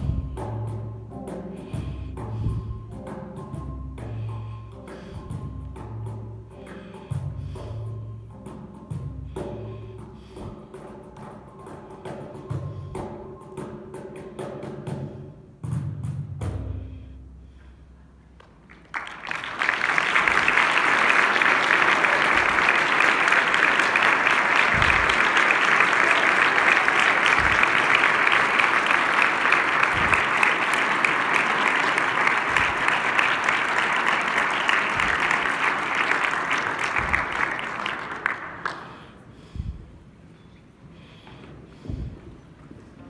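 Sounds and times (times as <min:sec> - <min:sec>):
audience applauding: 0:18.4 - 0:39.3.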